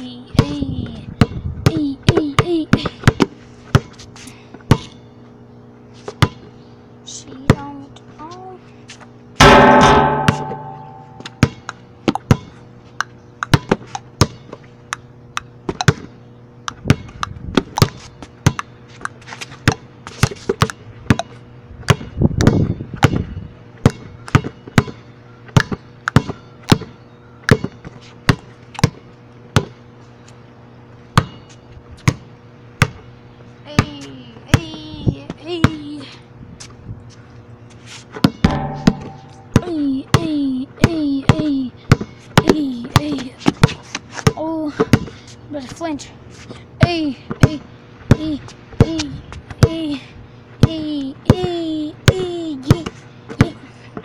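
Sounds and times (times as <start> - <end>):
basketball bouncing on pavement: 0.3 - 4.0, 4.7 - 4.9, 6.1 - 6.5, 9.4 - 12.6, 13.5 - 14.6, 15.6 - 16.2, 16.8 - 29.8, 31.2 - 33.1, 33.7 - 35.9, 38.2 - 45.1, 50.6 - 53.6.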